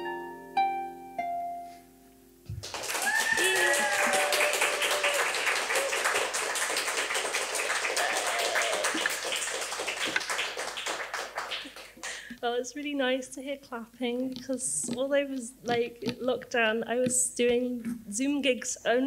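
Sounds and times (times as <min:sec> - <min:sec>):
audience clapping and cheering: 0:02.5 - 0:12.4
whoops: 0:02.8 - 0:06.4, 0:07.7 - 0:09.2.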